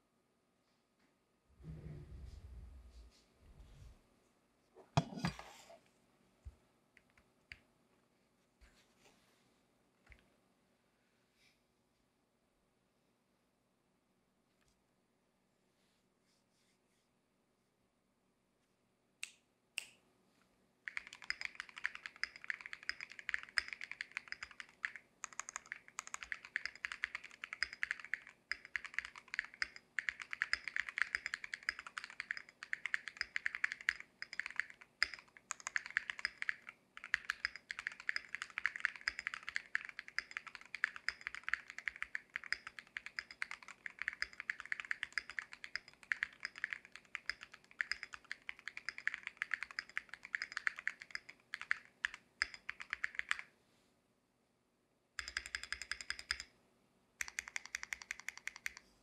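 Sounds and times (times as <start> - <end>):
fast typing on mechanical keyboard: 20.9 - 53.5, 55.2 - 56.5, 57.2 - 58.8.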